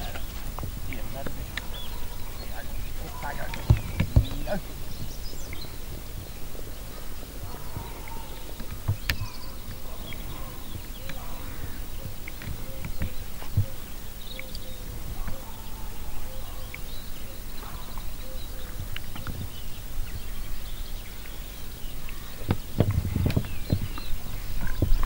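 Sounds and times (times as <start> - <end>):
soft knocks: 0.0 - 5.1
wind rumbling on microphone: 0.0 - 25.0.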